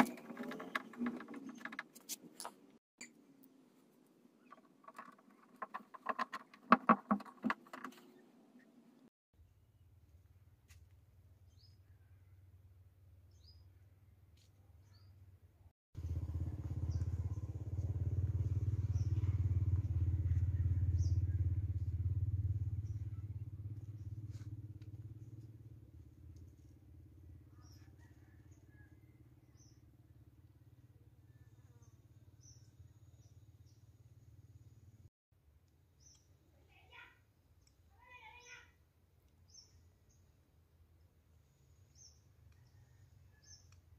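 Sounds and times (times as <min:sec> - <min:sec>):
passing vehicle engine rumble: 0:16.0 - 0:26.7
small birds chirping: 0:16.4 - 0:24.6, 0:35.9 - 0:38.7, 0:39.3 - 0:40.4, 0:41.5 - 0:43.8.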